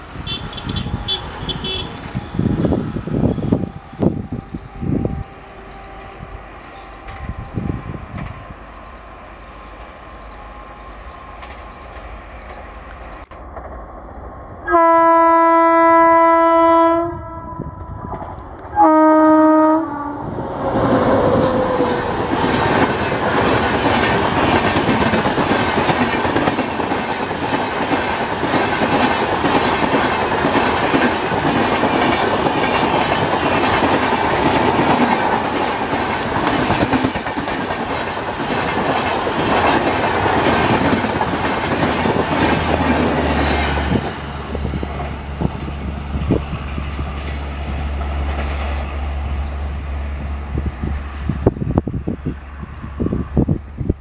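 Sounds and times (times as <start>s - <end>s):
two-tone train horn: 0.2s - 7.9s, 14.6s - 22.2s
train wheels clattering over rails: 20.4s - 49.9s.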